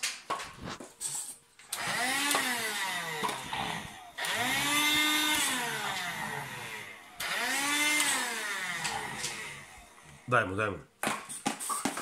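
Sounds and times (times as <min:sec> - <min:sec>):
handheld vacuum cleaner whining: 0:01.7 - 0:10.3.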